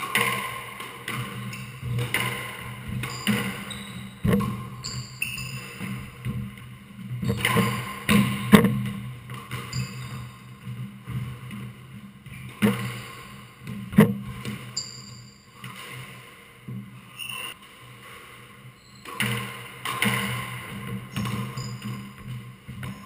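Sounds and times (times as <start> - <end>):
squash racket and ball knocks: 0.0 - 5.0, 7.2 - 9.7, 19.1 - 22.9
shoes squeaking on wooden floor: 1.5 - 9.0.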